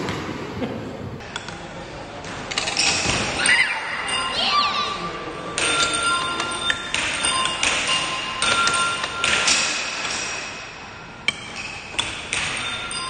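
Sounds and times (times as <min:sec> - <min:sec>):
arcade machines beeping and chiming: 0:03.6 - 0:10.1, 0:12.2 - 0:13.0
air hockey puck clacking: 0:05.6 - 0:13.0.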